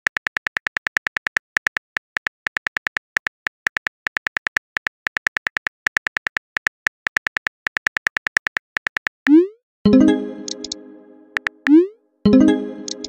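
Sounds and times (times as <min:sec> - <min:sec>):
phone keyboard key clicks: 0:00.1 - 0:09.2.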